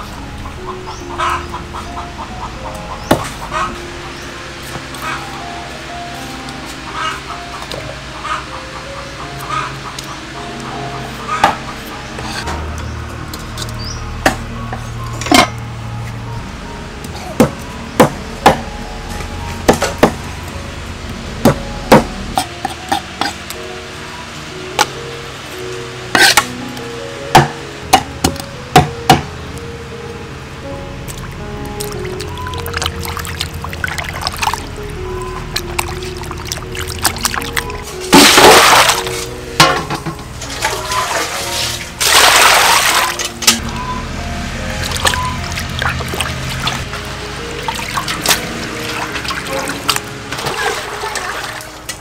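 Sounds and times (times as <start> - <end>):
background music: 0.0 - 52.0
water splashing in metal basin: 31.1 - 34.7, 35.5 - 43.6, 44.8 - 46.8, 47.6 - 52.0
rushes of water: 31.1 - 34.9, 35.5 - 39.3, 40.4 - 43.5, 44.8 - 46.9, 47.5 - 52.0.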